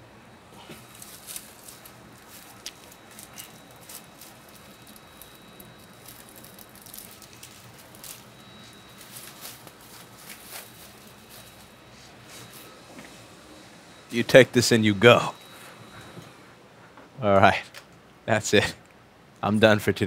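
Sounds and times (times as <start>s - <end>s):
faint steady hiss: 0.0s - 20.0s
plastic bag crinkling: 0.8s - 12.7s.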